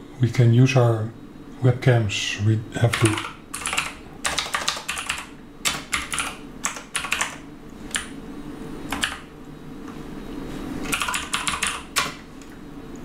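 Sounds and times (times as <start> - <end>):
keyboard keystroke clicks: 8.9 - 9.2.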